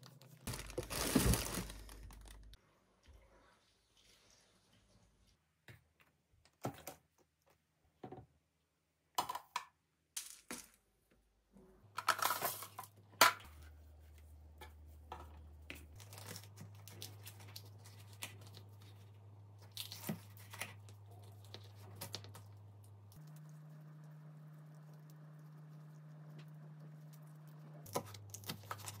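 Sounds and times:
packaging crinkling and tearing: 0.0s - 2.6s, 16.0s - 19.0s, 27.2s - 29.0s.

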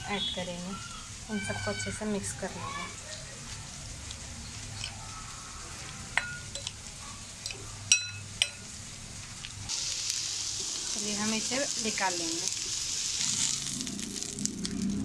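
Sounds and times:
frying pan sizzling: 0.0s - 15.0s
spoon clinking against glass bowl: 6.2s - 6.8s, 7.4s - 8.6s.

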